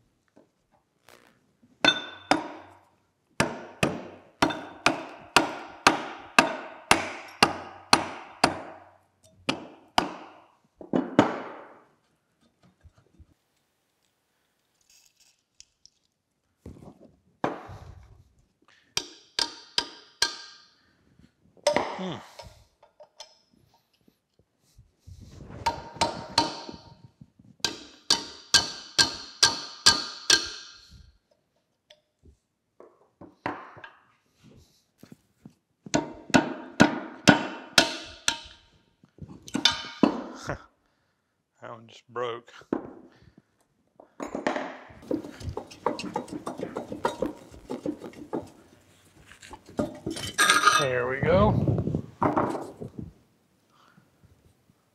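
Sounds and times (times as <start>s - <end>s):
hammer striking metal wrench: 4.4s - 7.8s, 19.0s - 20.8s, 27.6s - 30.9s, 37.3s - 38.7s.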